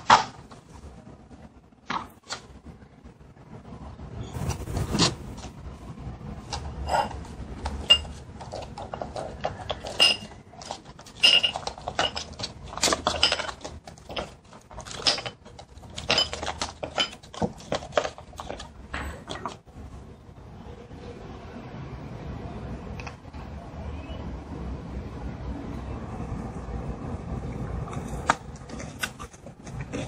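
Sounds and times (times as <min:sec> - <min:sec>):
plastic mold crackling: 0:06.4 - 0:19.6
chocolates clinking into ceramic bowl: 0:06.6 - 0:19.6.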